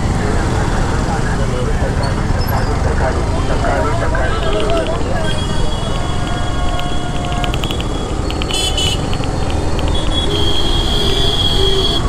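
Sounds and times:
motorcycle engine and road rumble: 0.0s - 12.0s
vehicle horns beeping: 3.4s - 12.0s.

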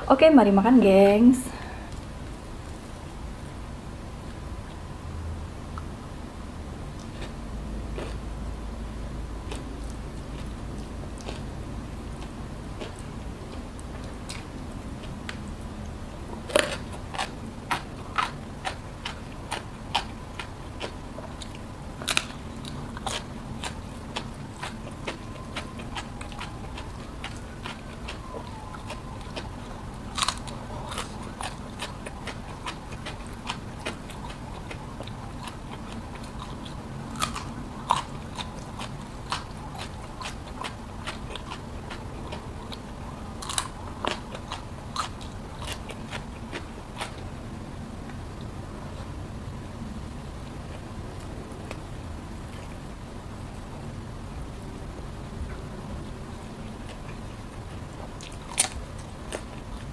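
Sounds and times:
crunching bites of crunchy food: 7.0s - 8.2s, 16.4s - 47.3s, 56.8s - 59.9s
person chewing: 7.0s - 8.2s, 9.5s - 11.6s, 12.2s - 47.3s, 56.7s - 59.9s.

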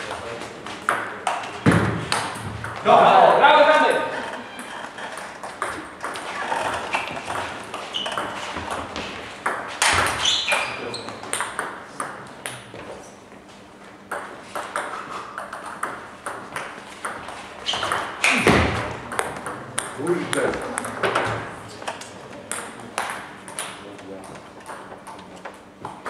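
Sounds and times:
table tennis balls clicking: 0.0s - 2.9s, 3.9s - 12.6s, 14.1s - 26.0s.

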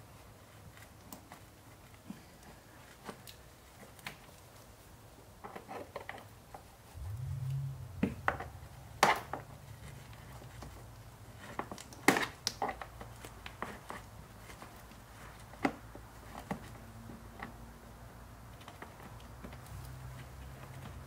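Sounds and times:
low steady hum: 7.0s - 11.7s.

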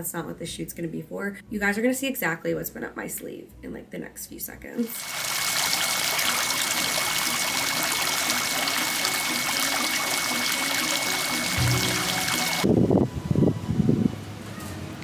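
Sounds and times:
fountain water splashing and trickling: 4.8s - 12.7s.

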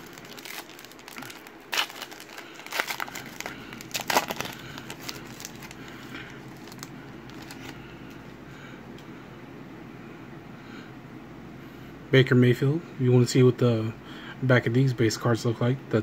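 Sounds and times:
cards rustling: 0.0s - 7.8s
foil wrapper crinkling: 0.0s - 7.8s.

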